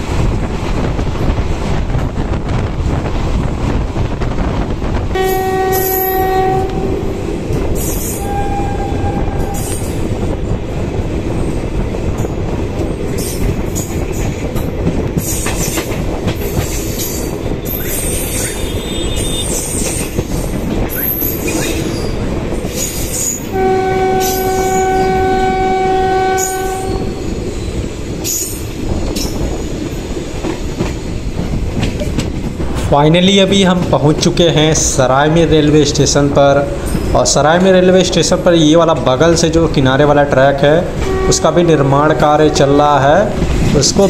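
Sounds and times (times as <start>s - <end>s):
train wheels rumbling and clicking: 0.0s - 44.0s
train horn blast: 5.1s - 7.2s, 8.1s - 9.9s, 23.5s - 27.2s, 41.0s - 42.8s.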